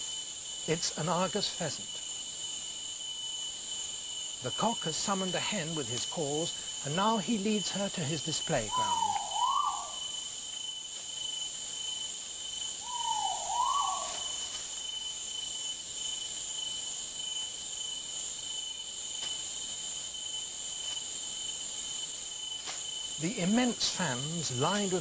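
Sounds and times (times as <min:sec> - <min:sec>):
insect chorus: 0:00.0 - 0:25.0
bird wavering call: 0:08.6 - 0:10.3, 0:12.8 - 0:14.6.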